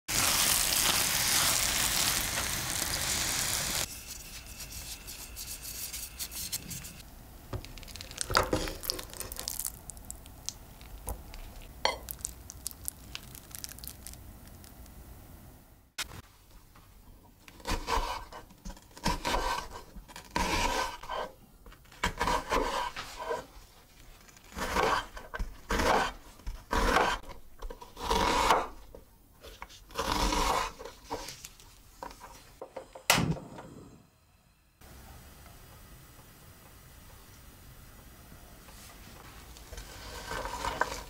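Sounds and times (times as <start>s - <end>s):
knife slicing onion on cutting board: 17.6s - 18.4s, 19.0s - 21.3s, 22.0s - 23.4s, 24.5s - 28.7s.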